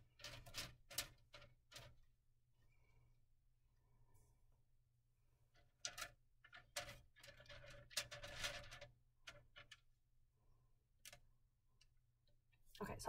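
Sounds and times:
faint plastic clicks: 11.0 - 12.8.

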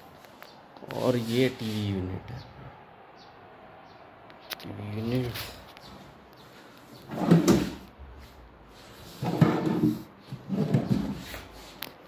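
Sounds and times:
wooden drawers sliding: 7.0 - 7.9, 9.0 - 11.7.

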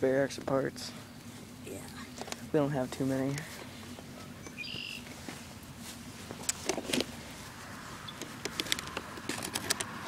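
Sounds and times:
screwdriver clicks on plastic parts: 8.4 - 10.0.

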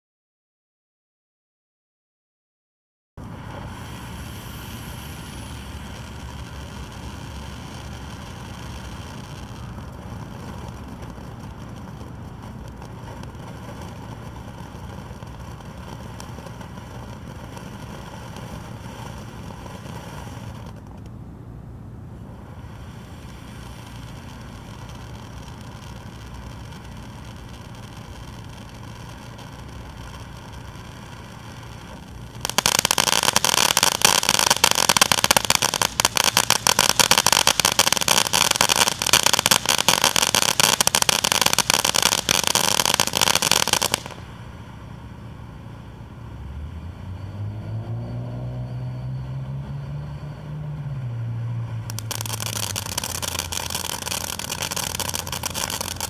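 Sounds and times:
dense fireworks crackling: 3.2 - 56.0
fireworks fountain spraying sparks: 3.2 - 56.0
low droning tone: 44.4 - 51.9.

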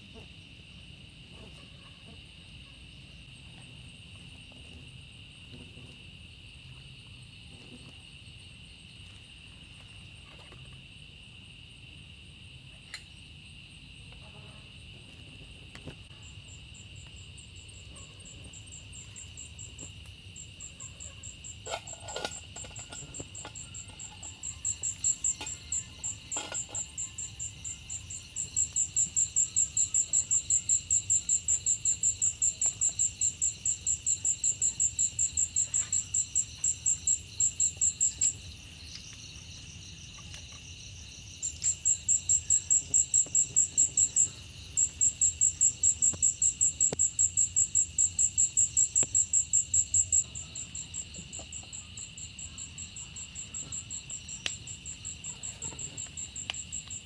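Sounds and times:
insect chorus drone: 0.0 - 57.0
insect pulsing trill: 12.5 - 57.0.

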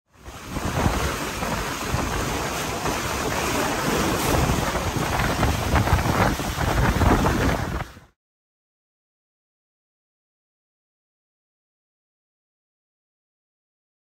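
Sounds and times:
water rushing and splashing: 0.1 - 8.2
wind buffeting microphone: 0.2 - 8.2.

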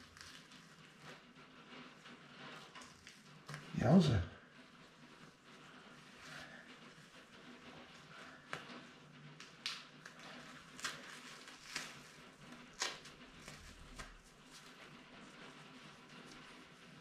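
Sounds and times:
dressing crackling and rustling: 0.0 - 17.0
dressing tearing rips: 9.4 - 14.6.

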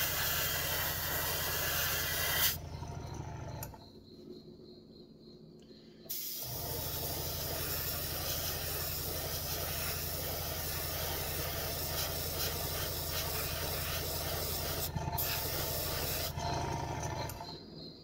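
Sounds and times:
airbrush hissing: 0.0 - 2.6, 6.1 - 16.3
compressor humming: 6.1 - 17.4.

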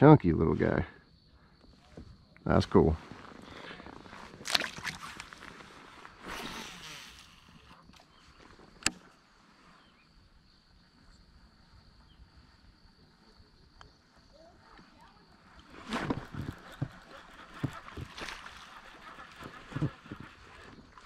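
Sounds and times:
water splash: 4.4 - 5.3.

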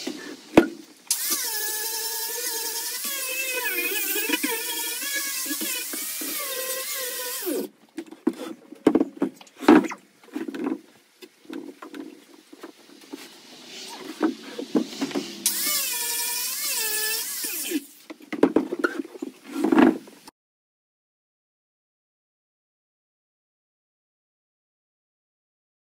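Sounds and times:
power tool motor whining: 1.1 - 7.7, 15.0 - 18.0.

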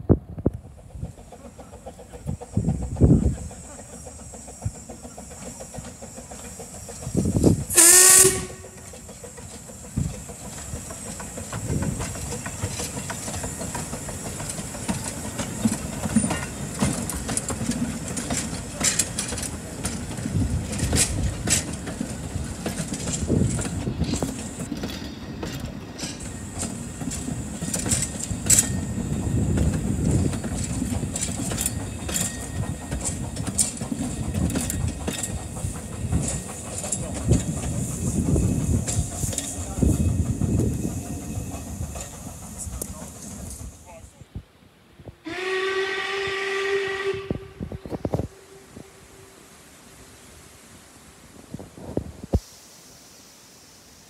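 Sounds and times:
steam locomotive rumbling past: 0.0 - 44.2, 45.1 - 54.0
steam locomotive whistle: 7.6 - 9.0, 45.2 - 49.6
wheels and couplings clanking: 8.4 - 43.9.

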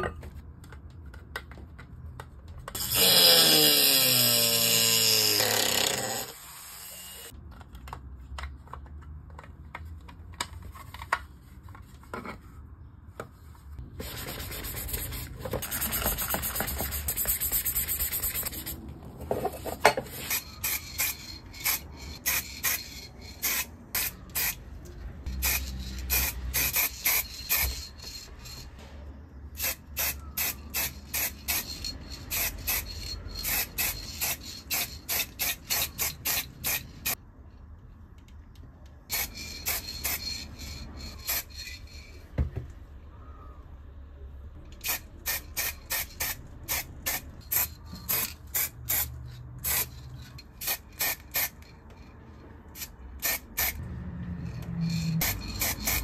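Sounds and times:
spray paint can hissing: 14.4 - 18.8, 20.2 - 24.6, 25.3 - 28.6, 29.6 - 37.2, 39.1 - 42.0, 44.8 - 50.0, 50.6 - 51.6, 52.8 - 53.8, 54.9 - 56.0.

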